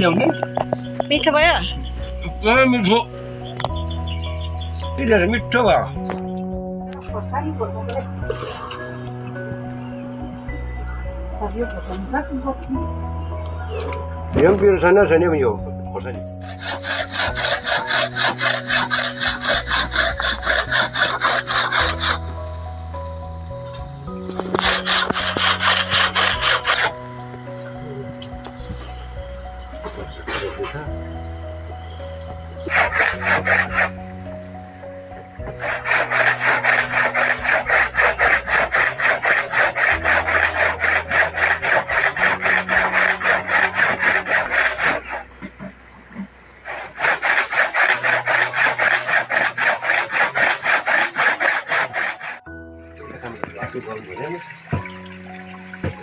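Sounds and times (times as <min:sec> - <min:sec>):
hand saw cutting wood: 0:16.4 - 0:22.4, 0:24.2 - 0:27.1, 0:32.6 - 0:34.1, 0:35.4 - 0:52.4.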